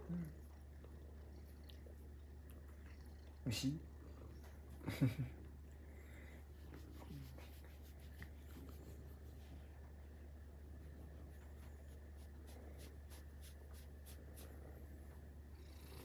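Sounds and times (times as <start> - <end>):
low steady hum: 0.0 - 16.0
hand stroking cat fur: 6.5 - 9.7, 11.1 - 14.8.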